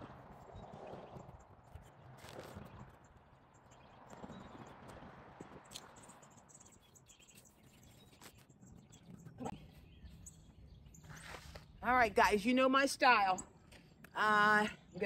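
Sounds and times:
bird chirps: 5.7s - 11.8s.

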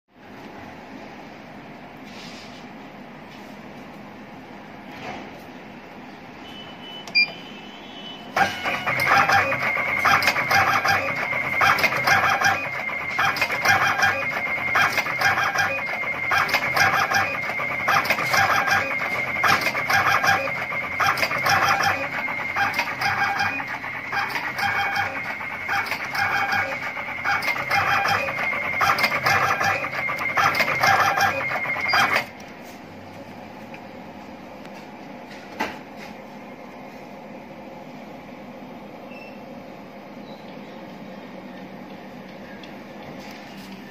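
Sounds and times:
control panel beep: 6.5s - 32.3s
wire cutting machine running: 8.3s - 32.4s.

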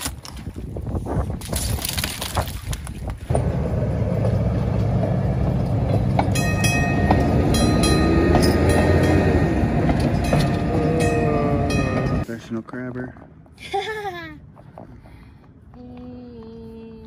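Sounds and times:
streetcar rumbling on rails: 3.3s - 12.3s.

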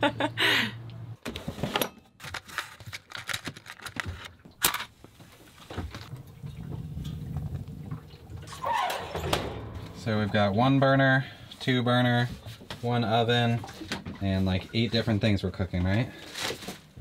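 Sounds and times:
low steady hum: 5.6s - 14.8s.

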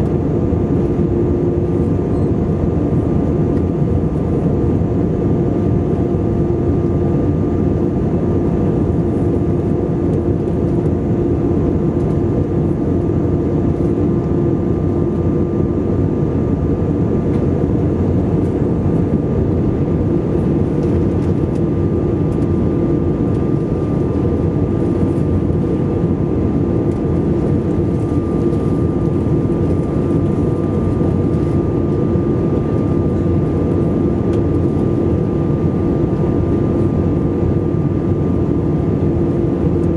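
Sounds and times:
airplane cabin airflow and engine drone: 0.0s - 39.9s
faint high whine: 1.9s - 2.6s.

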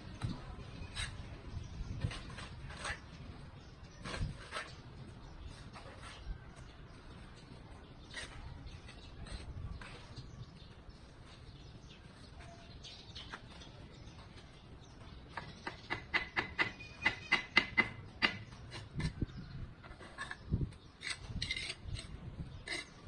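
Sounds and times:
trowel scraping mortar: 0.2s - 1.3s, 1.9s - 6.3s, 7.2s - 13.8s, 19.8s - 23.0s
trowel tapping brick: 15.3s - 19.2s.

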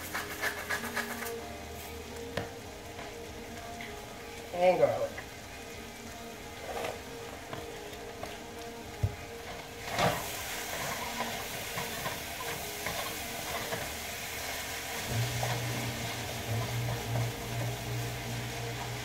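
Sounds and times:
utensil scraping the pan: 0.0s - 1.5s
cabbage sizzling in a frying pan: 0.0s - 19.0s
low steady hum: 15.0s - 19.0s.

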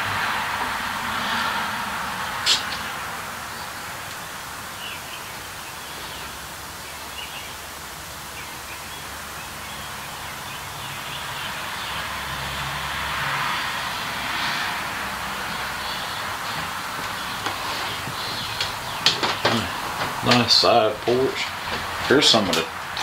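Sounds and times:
background noise: 0.0s - 23.0s.

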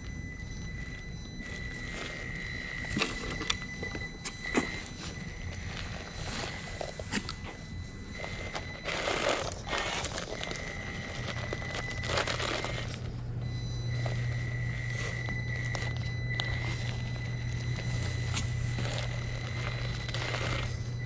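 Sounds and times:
low hum: 0.0s - 21.0s
small electric motor whine: 0.0s - 21.0s
tyres crunching on rubble: 1.6s - 13.2s.

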